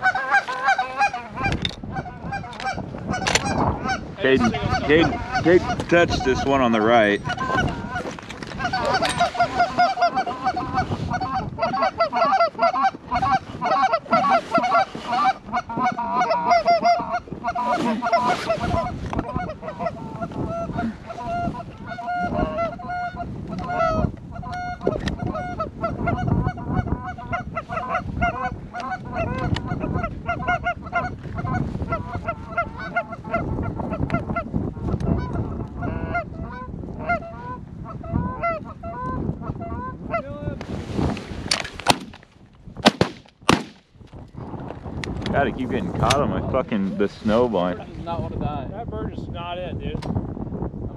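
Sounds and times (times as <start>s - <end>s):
geese honking: 0.0s - 34.4s, 35.0s - 40.2s.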